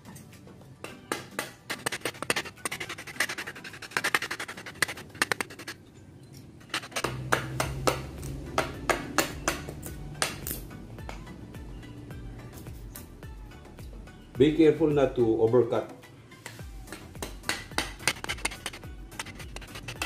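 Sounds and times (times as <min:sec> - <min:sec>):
background music: 0:00.0 - 0:20.0
knife chopping wood: 0:00.8 - 0:05.7, 0:06.7 - 0:10.6, 0:16.9 - 0:20.0.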